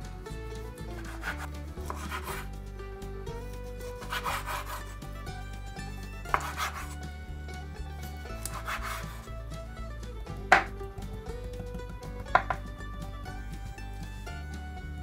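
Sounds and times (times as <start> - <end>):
soft background music: 0.0 - 15.0
knife slicing meat on board: 1.0 - 2.5, 3.9 - 4.9, 6.3 - 7.0, 8.4 - 9.3
knife blade tapping board: 6.3 - 7.0, 8.4 - 9.1, 10.5 - 10.7, 12.2 - 12.7.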